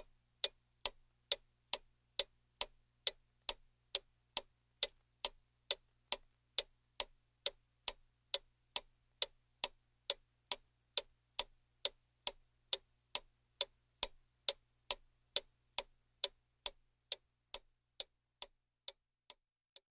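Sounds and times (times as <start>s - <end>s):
steady ticking: 0.0s - 19.4s.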